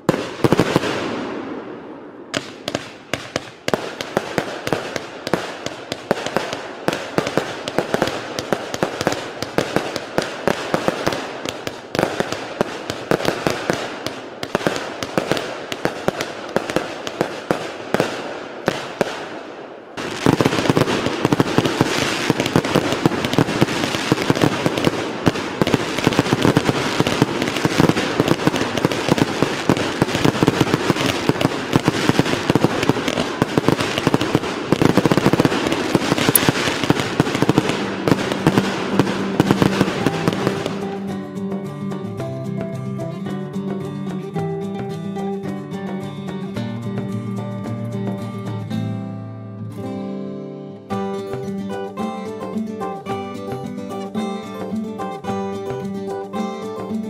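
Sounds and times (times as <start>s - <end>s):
fireworks bangs and crackles: 0.0s - 45.6s.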